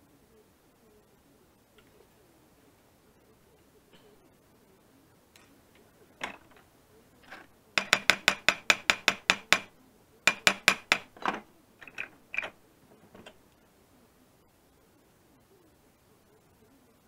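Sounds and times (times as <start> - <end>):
hammer striking metal nail: 7.3 - 9.7, 10.3 - 12.5
light hammer knocks: 7.8 - 9.7, 10.3 - 11.2.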